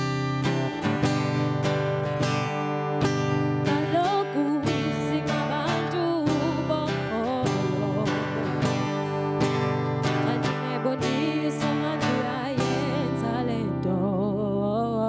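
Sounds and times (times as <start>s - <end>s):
acoustic guitar strumming: 0.0s - 15.0s
person singing: 3.5s - 15.0s.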